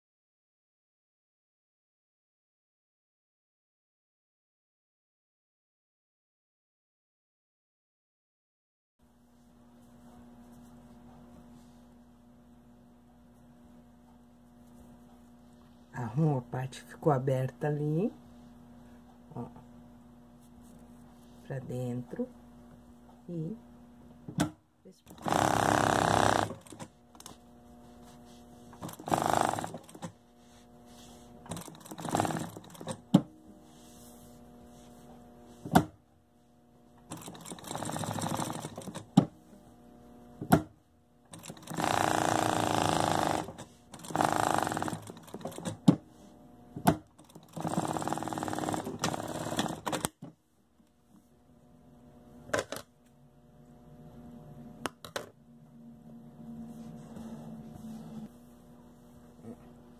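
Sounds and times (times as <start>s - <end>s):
sewing machine stitching: 25.1s - 27.4s, 28.7s - 30.2s, 31.4s - 33.1s, 37.0s - 39.3s, 41.3s - 46.0s, 47.2s - 50.2s.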